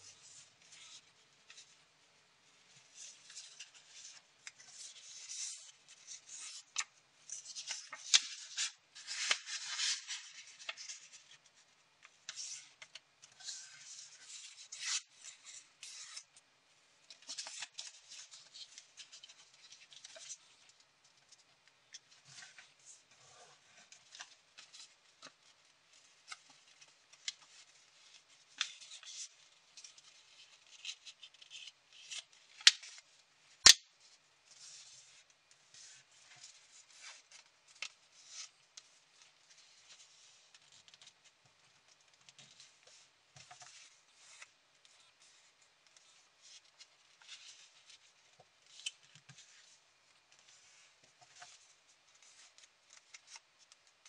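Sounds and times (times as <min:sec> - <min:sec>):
paper crackling and rustling: 0:02.5 - 0:16.4, 0:34.1 - 0:54.0.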